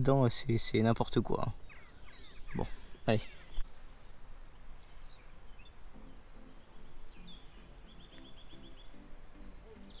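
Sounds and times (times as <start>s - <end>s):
low bird calls: 1.5s - 3.9s, 4.8s - 10.0s
high chirping trill: 5.9s - 10.0s.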